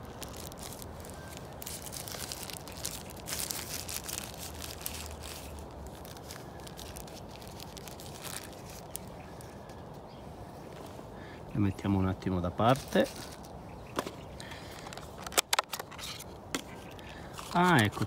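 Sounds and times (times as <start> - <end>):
plastic wrap crinkling: 0.0 - 9.8, 12.6 - 13.6.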